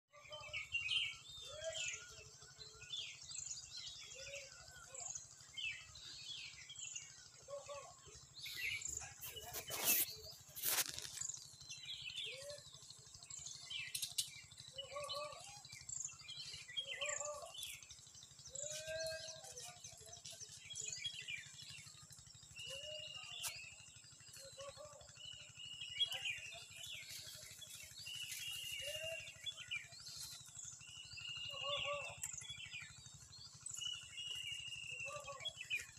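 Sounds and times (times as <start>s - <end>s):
birds chirping and calling: 0.1s - 35.9s
low arching bird call: 14.7s - 19.8s, 31.2s - 33.0s, 33.8s - 35.9s.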